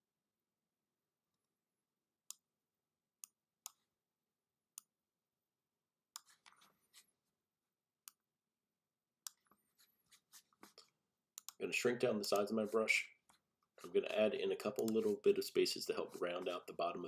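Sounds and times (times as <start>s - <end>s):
computer mouse clicks: 10.6s - 11.6s, 14.7s - 15.1s
soft scratchy sounds: 11.6s - 17.0s.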